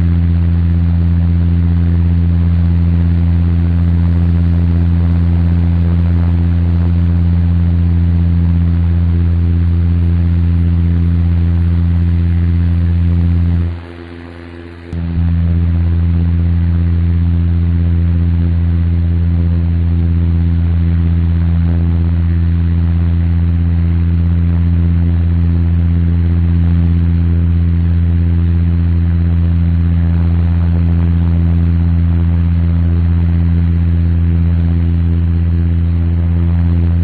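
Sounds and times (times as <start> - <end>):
airliner engine hum: 0.0 - 17.5, 26.6 - 37.0.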